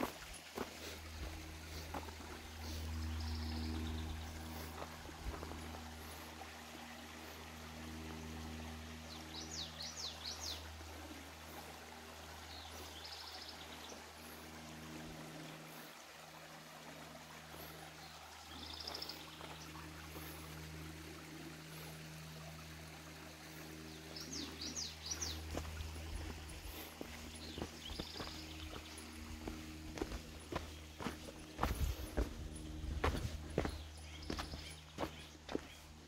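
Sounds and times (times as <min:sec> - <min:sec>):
creek trickling over rocks: 0:00.0 - 0:36.0
birds calling: 0:23.4 - 0:36.0.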